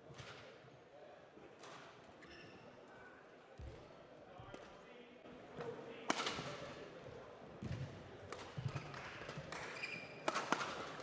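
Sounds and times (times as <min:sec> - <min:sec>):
shoe squeak: 0:09.8 - 0:10.2.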